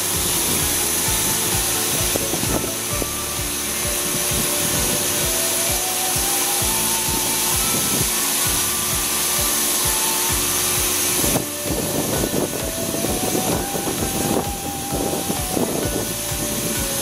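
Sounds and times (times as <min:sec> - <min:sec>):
electric train motor whine: 0:00.0 - 0:17.0.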